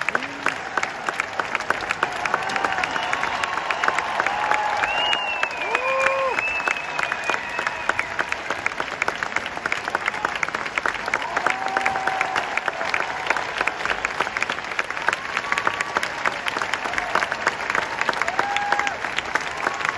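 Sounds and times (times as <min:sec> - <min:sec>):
audience applauding: 0:00.0 - 0:19.9.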